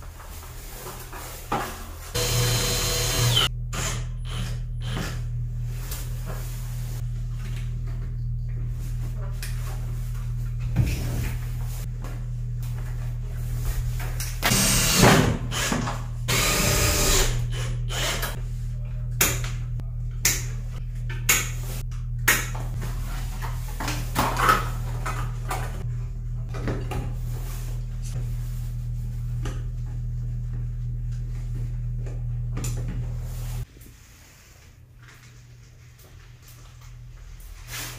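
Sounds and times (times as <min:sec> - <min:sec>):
drill driving screws: 0:02.2 - 0:04.0, 0:14.5 - 0:18.3
steady low hum: 0:02.2 - 0:37.7.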